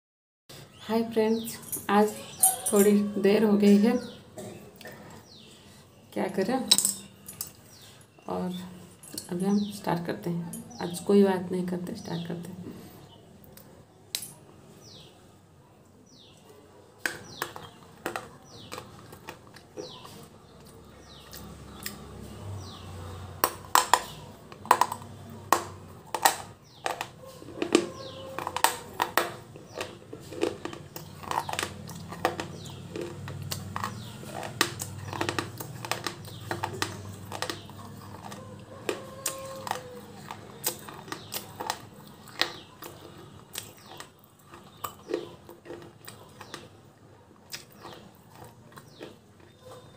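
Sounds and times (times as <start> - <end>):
crunching and chewing: 4.0 - 6.0, 6.9 - 9.2, 16.2 - 49.9.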